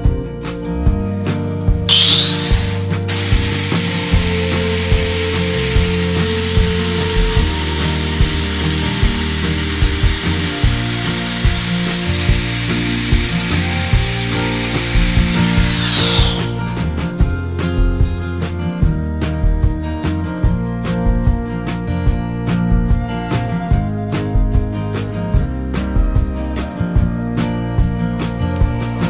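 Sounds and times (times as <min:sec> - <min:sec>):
mixer grinder motor whine: 0:01.9 - 0:16.6.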